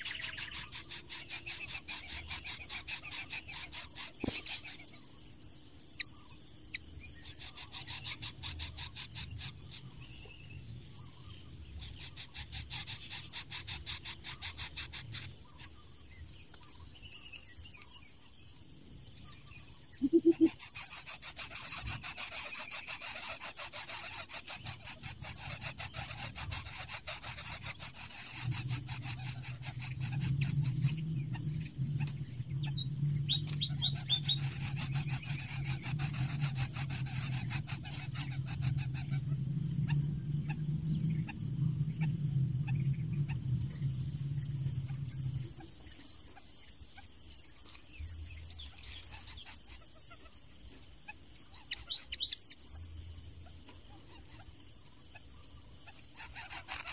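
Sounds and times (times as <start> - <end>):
insects chorus pulsing: 0.0 - 56.9
short bird chirps: 19.9 - 23.4
steady low hum: 36.5 - 46.2.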